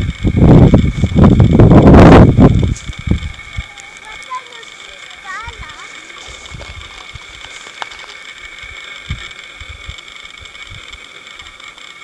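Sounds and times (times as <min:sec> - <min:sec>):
wind buffeting microphone: 0:00.0 - 0:04.2, 0:05.4 - 0:11.0
high-pitched drone: 0:00.0 - 0:12.0.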